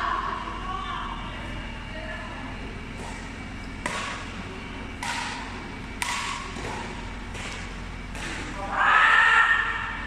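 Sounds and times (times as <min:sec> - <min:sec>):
rackets hitting shuttlecock: 0:02.9 - 0:08.7.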